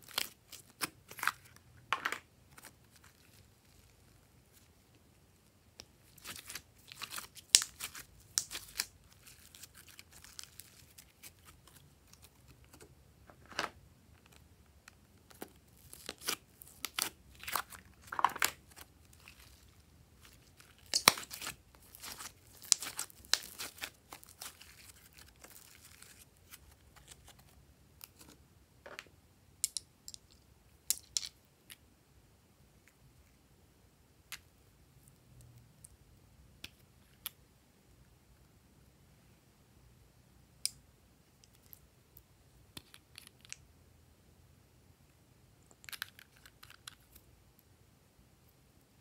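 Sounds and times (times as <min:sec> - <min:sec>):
slime crackling and popping: 0:06.1 - 0:12.3, 0:15.3 - 0:27.1.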